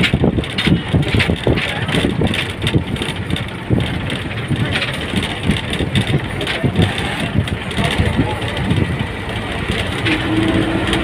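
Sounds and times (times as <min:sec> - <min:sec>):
vehicle interior rumble: 0:00.0 - 0:11.0.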